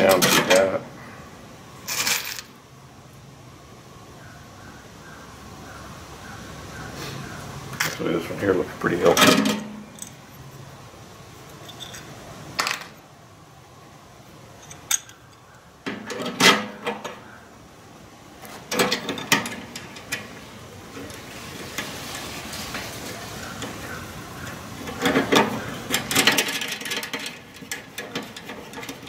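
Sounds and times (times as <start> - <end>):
screws rattling against metal bracket: 24.8 - 29.0.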